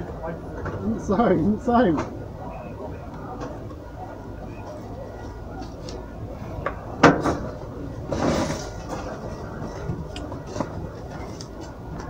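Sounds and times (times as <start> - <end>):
rustling scrape: 7.3 - 11.7.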